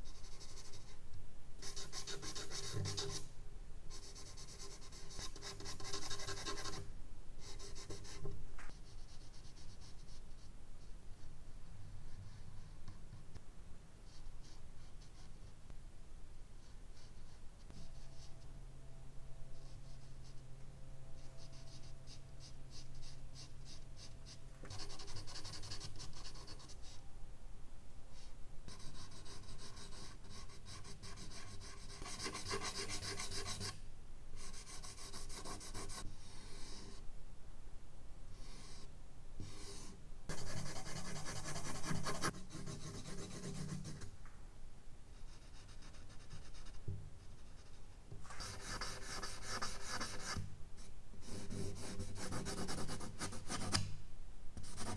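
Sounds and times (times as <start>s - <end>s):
charcoal scratching on paper: 1.6s - 3.2s, 4.0s - 6.8s, 21.4s - 26.8s, 28.2s - 33.8s, 34.4s - 36.1s, 39.6s - 44.0s, 47.4s - 50.4s, 51.2s - 53.8s.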